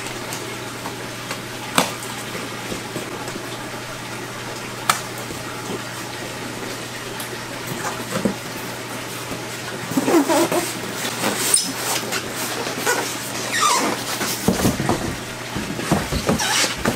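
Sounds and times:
low pump hum: 0.0s - 16.9s
running water: 0.0s - 16.9s.

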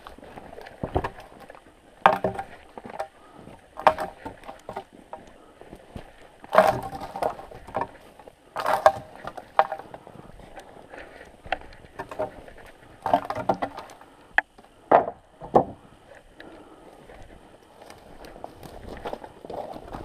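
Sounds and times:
footsteps crunching through snow: 17.0s - 20.0s.

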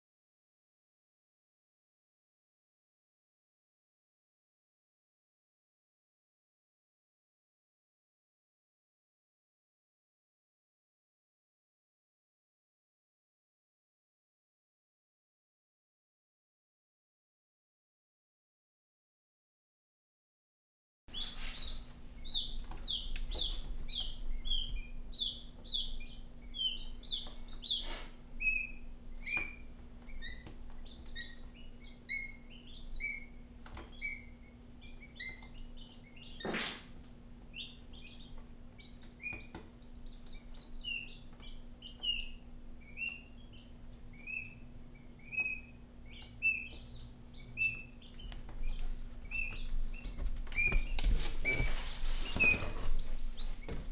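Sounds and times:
quail chicks peeping: 21.1s - 53.9s.

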